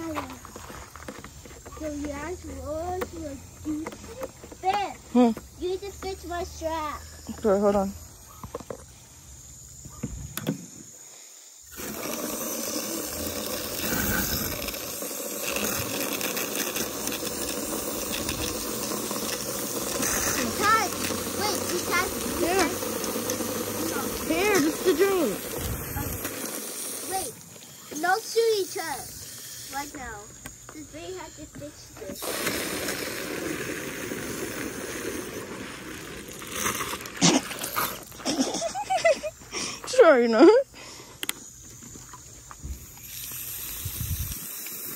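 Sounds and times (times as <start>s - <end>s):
water running into plastic tank: 11.7s - 29.0s, 32.2s - 38.2s.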